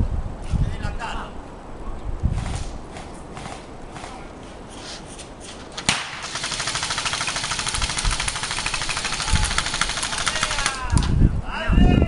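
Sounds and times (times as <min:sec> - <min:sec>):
airsoft rifle full-auto burst: 0:05.9 - 0:11.0.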